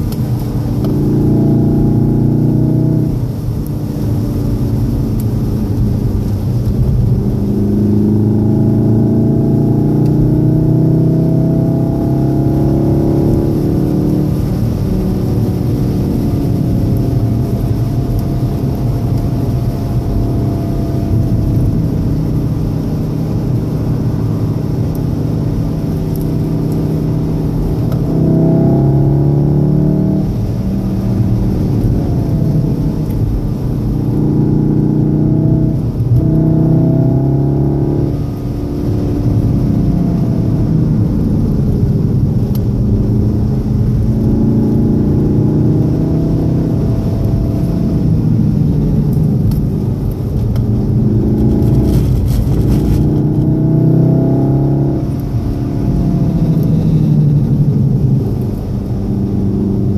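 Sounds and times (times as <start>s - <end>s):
car engine accelerating: 0.0s - 59.9s
tyre and road spray noise: 49.2s - 53.4s.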